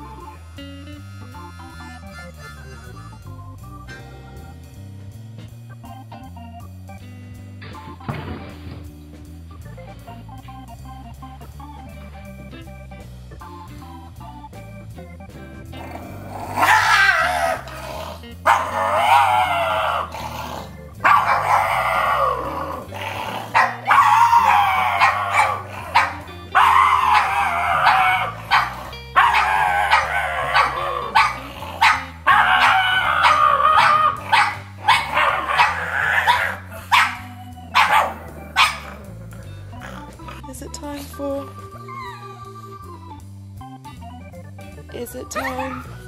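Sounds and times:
dog howling: 15.8 - 40.1, 41.8 - 42.5.

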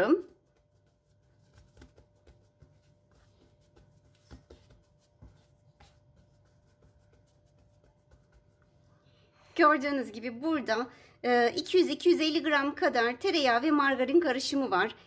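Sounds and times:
fingertips pressing dough: 0.2 - 8.7.

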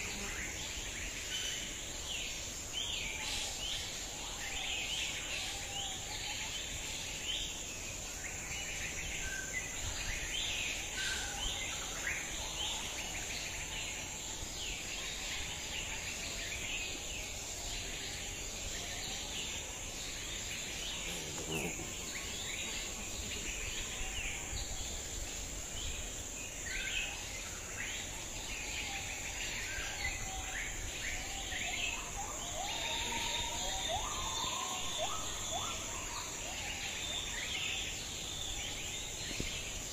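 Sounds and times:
high-pitched insect drone: 26.7 - 39.9.

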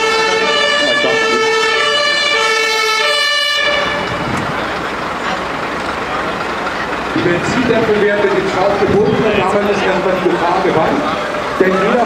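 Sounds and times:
two-tone emergency siren: 0.0 - 4.8
street traffic noise: 0.0 - 12.0.

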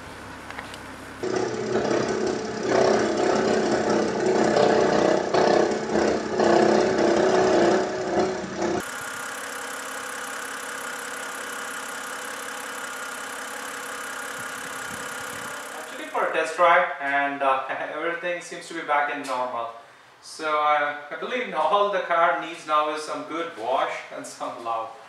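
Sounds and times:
car engine idling: 1.2 - 16.2
alternator rattle: 1.2 - 16.4.

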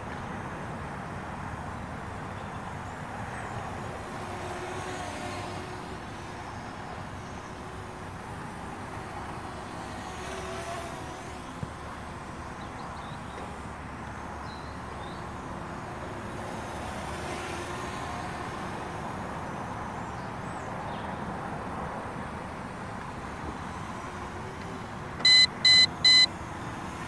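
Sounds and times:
quadcopter motor whine: 7.5 - 13.8, 22.7 - 27.0.

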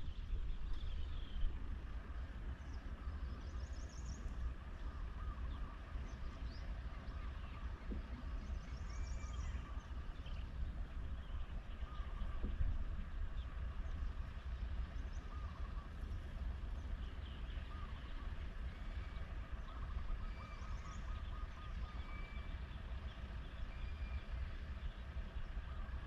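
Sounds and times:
wind rumbling on microphone: 0.0 - 26.0
bird trill: 16.9 - 25.9.

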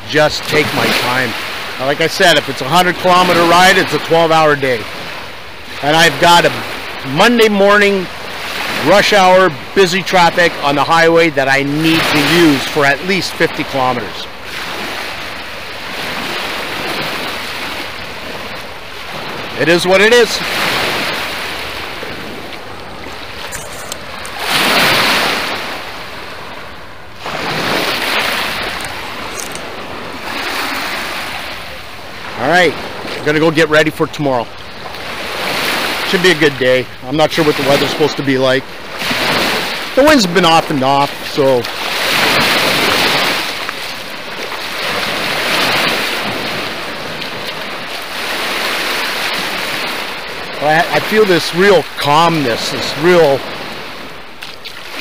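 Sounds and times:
waves washing onto shore: 0.0 - 55.0.

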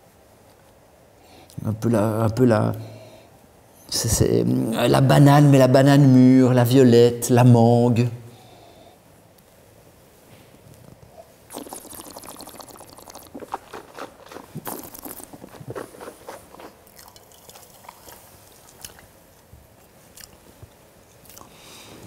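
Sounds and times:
wet mouth sounds: 10.9 - 19.2, 21.2 - 21.6
person slurping wine: 11.5 - 19.0.

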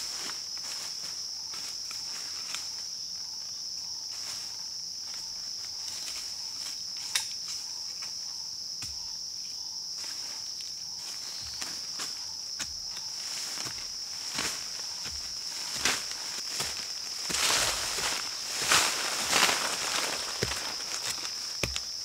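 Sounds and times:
high insect drone: 0.0 - 22.0
footsteps on dry leaves: 10.1 - 22.0.

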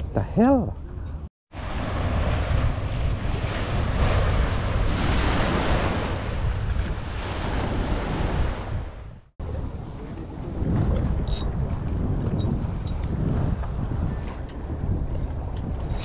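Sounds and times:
wind buffeting microphone: 0.8 - 16.0
small waves washing onto beach: 1.5 - 11.3.

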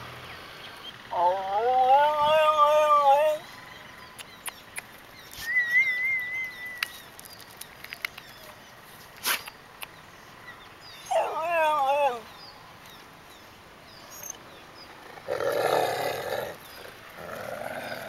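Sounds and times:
dog howling: 1.1 - 3.5, 11.0 - 12.3
small chirps and clicks: 4.0 - 8.6.

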